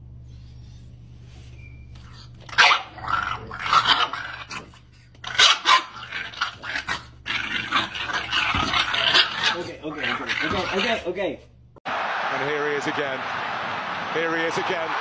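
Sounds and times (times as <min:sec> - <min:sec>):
small dog barking and growling: 0:02.5 - 0:11.0.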